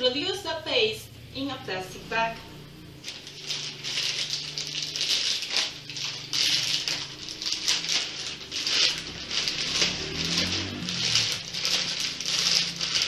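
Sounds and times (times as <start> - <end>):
plastic bag rustling: 3.0 - 13.0.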